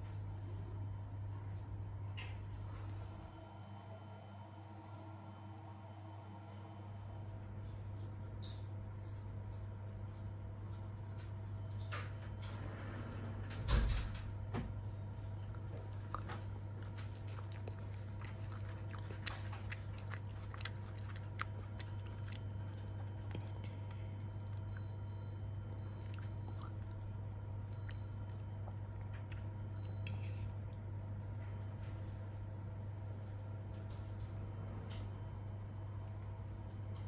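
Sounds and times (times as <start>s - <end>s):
steady low hum: 0.0s - 37.0s
person chewing food: 15.3s - 31.1s.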